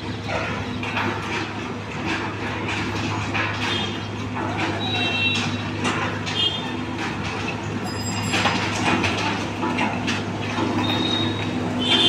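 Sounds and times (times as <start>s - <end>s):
diesel engine humming: 0.0s - 12.0s.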